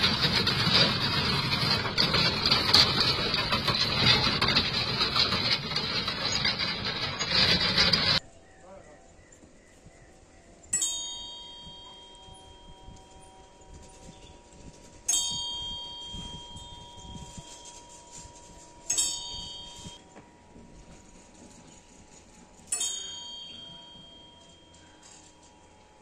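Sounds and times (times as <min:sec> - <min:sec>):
prayer wheel bell ringing: 0:10.8 - 0:20.1, 0:22.6 - 0:25.8.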